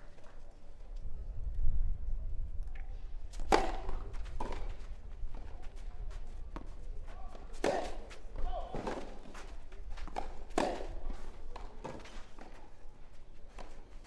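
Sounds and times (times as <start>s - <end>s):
tennis ball struck by racket: 3.3s - 4.7s, 7.5s - 9.3s, 10.0s - 12.5s.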